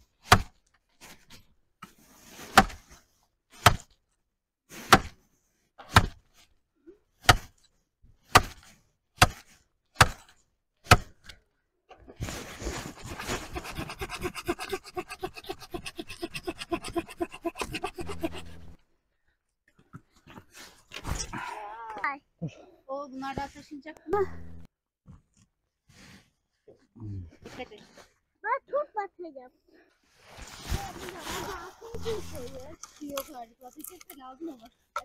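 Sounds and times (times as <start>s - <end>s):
hatchet chopping log: 0.2s - 0.6s, 2.5s - 2.8s, 3.6s - 4.0s, 4.9s - 5.2s, 5.8s - 6.3s, 7.2s - 7.6s, 8.2s - 11.3s
hand saw rasping through wood: 12.8s - 18.8s.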